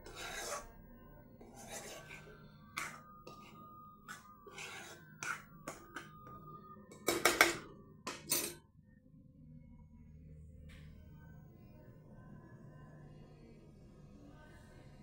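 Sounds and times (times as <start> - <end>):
spatula scraping lentils in a pan: 0.0 - 0.8, 1.4 - 6.3.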